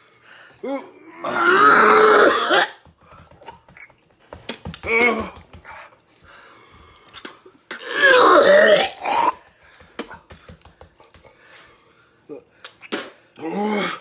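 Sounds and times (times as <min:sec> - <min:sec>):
man retching: 0:01.3 - 0:02.8, 0:07.2 - 0:09.4
coughing and throat-clearing: 0:01.7 - 0:02.8, 0:07.2 - 0:09.4.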